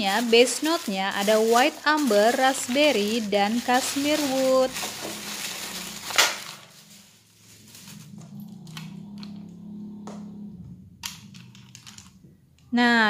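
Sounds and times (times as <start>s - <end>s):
paper crinkling: 0.0s - 8.7s.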